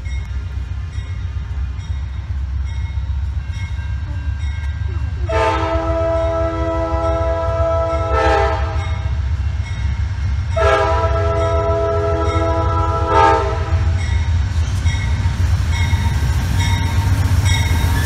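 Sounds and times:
locomotive air horn blasts: 0:04.9 - 0:09.1, 0:10.5 - 0:14.1.

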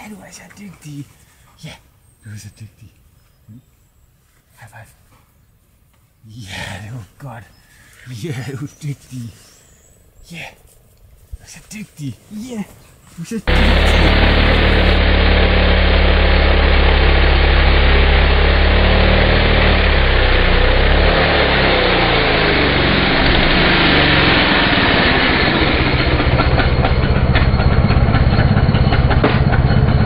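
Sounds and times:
chainsaw cutting log: 0:13.5 - 0:25.8.

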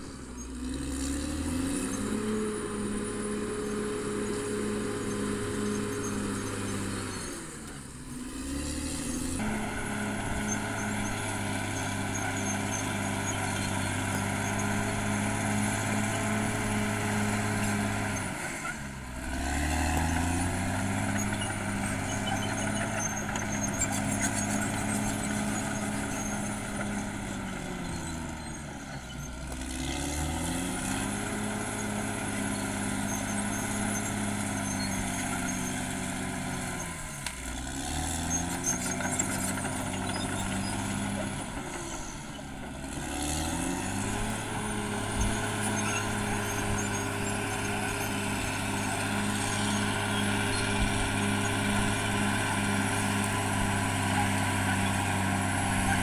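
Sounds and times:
bulldozer diesel engine running: 0:00.0 - 0:56.0.

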